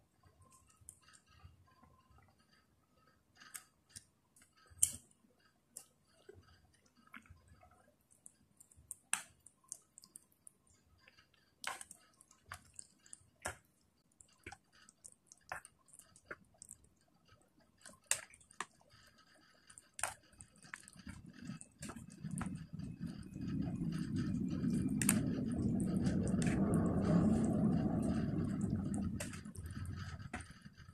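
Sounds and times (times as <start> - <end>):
low rumble: 21.1 - 30.9.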